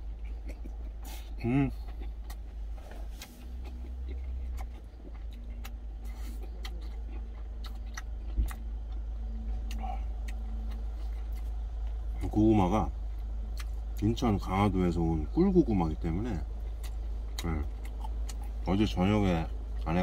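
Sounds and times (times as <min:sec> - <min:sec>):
man chewing food: 0:00.0 - 0:20.0
steady low hum: 0:00.0 - 0:20.0.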